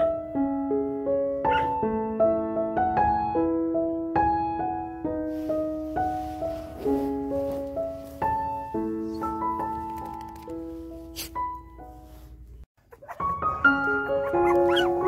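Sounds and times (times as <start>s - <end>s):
slow gentle piano music: 0.0s - 15.0s
small dog yipping: 1.5s - 1.8s, 12.9s - 15.0s.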